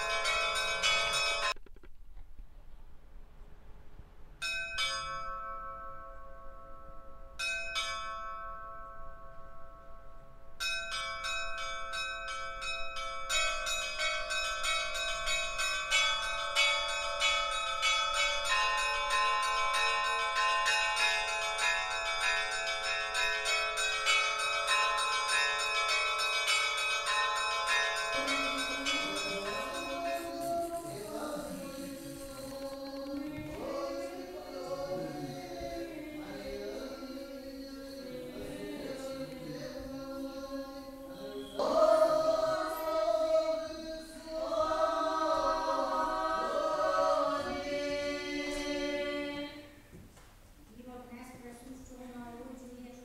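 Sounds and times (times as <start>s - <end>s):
church bells ringing: 0.0s - 1.6s, 4.4s - 32.5s
voices chanting: 28.0s - 49.8s.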